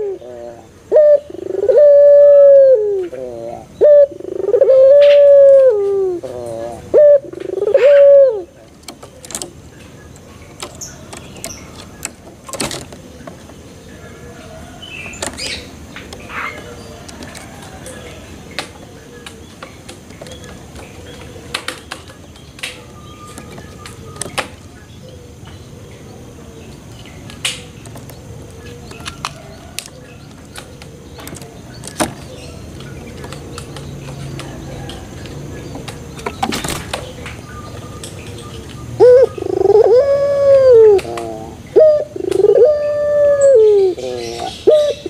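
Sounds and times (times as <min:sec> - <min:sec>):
wing rustle: 0:00.0 - 0:24.8
small birds chirping: 0:00.0 - 0:45.0
dove clicking and tapping in cage: 0:03.8 - 0:24.7, 0:26.8 - 0:43.4
dove taps and clicks on perch: 0:08.7 - 0:09.6, 0:10.5 - 0:13.5, 0:21.5 - 0:24.6, 0:28.8 - 0:37.4, 0:40.9 - 0:41.4, 0:42.2 - 0:42.6.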